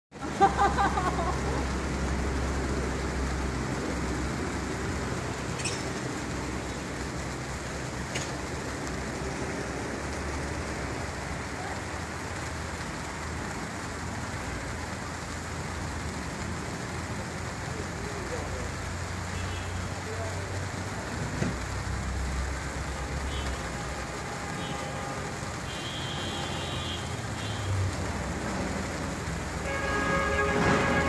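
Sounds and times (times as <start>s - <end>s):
firework hissing sparks: 0.2s - 14.8s.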